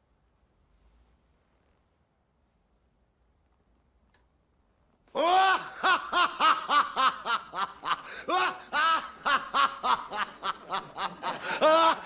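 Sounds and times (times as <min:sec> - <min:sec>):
people laughing heartily: 0:05.2 - 0:12.0.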